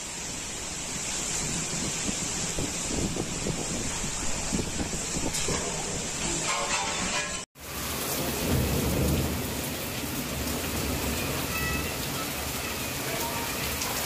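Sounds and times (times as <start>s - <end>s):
heavy rain pouring: 0.0s - 14.0s
low thunder rumble: 1.4s - 6.2s, 7.7s - 12.6s.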